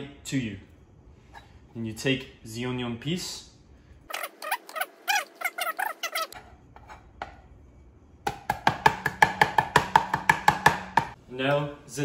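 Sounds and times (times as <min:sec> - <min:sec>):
high-pitched squeaky chirps: 0:04.1 - 0:06.4
knife chopping on plastic board: 0:08.3 - 0:11.2.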